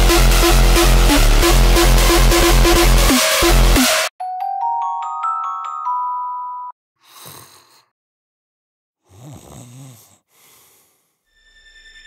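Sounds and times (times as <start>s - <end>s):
music: 0.0s - 6.7s
mallet percussion chord: 4.2s - 6.7s
person breathing: 7.0s - 7.9s, 9.0s - 11.3s
person snoring: 7.0s - 7.9s, 9.0s - 11.2s.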